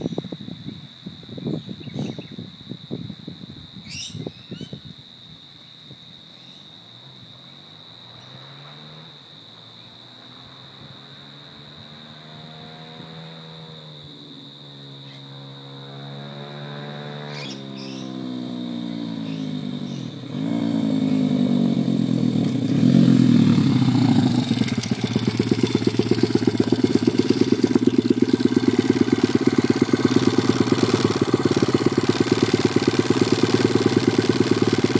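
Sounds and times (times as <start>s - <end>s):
pit bike engine revving: 15.3s - 34.9s
motorbike engine idling: 21.8s - 34.9s.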